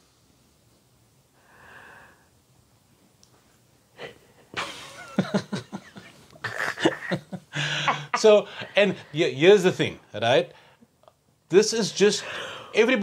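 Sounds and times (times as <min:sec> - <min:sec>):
soft breath: 0:01.4 - 0:02.4, 0:12.2 - 0:12.8
man and woman laughing: 0:04.6 - 0:08.5.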